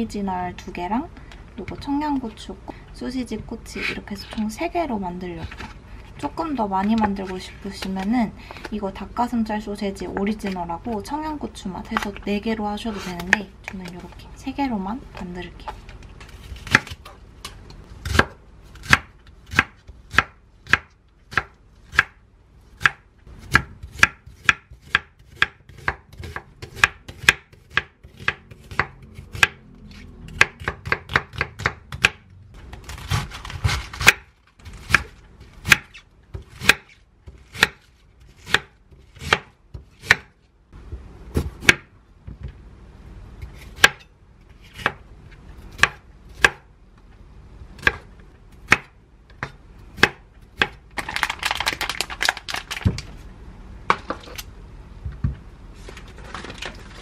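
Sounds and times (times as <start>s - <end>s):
knife chopping on wooden board: 22.8s - 29.6s, 30.4s - 32.2s, 33.1s - 40.3s, 41.3s - 41.9s.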